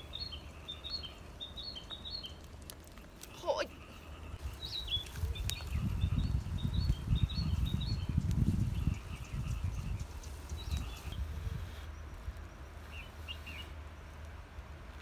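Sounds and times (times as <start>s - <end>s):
small birds chirping: 0.0s - 14.2s
sticks clicking on wood fire: 2.3s - 3.4s.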